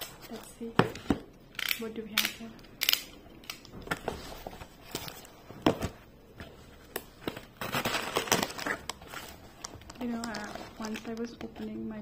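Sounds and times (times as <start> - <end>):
packaging rustling: 3.6 - 11.7.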